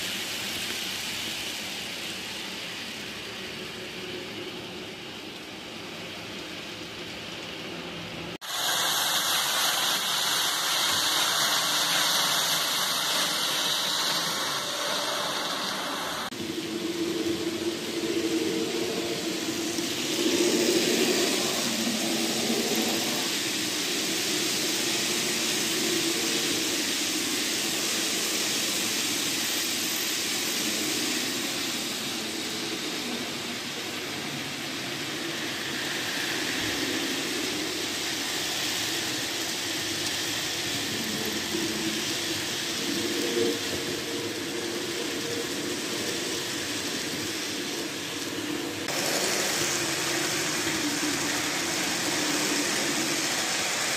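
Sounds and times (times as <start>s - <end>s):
wheels hissing on rails: 0.0s - 53.9s
model train motor whirring: 8.5s - 16.4s, 19.2s - 53.9s.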